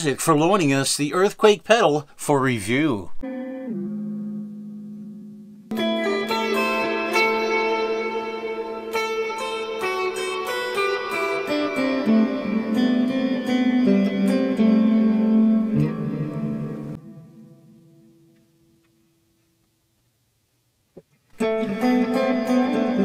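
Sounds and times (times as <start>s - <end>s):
electric guitar with reverb: 3.2s - 18.9s, 21.4s - 23.0s.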